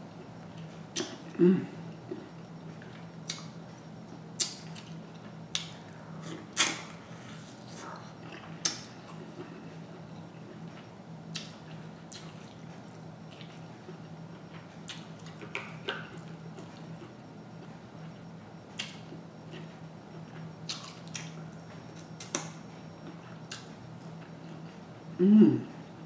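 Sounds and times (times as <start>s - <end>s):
faint low hum: 0.0s - 26.0s
wet chewing clicks and smacks: 2.8s - 3.5s, 4.4s - 5.8s, 10.5s - 17.1s, 18.7s - 24.7s.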